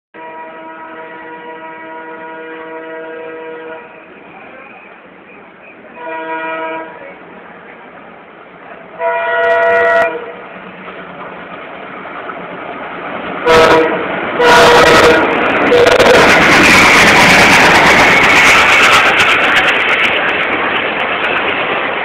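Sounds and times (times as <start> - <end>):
locomotive horn blasts: 0.2 - 4.1, 6.0 - 7.0, 9.0 - 10.4, 13.4 - 16.4
train rushing: 0.2 - 22.0.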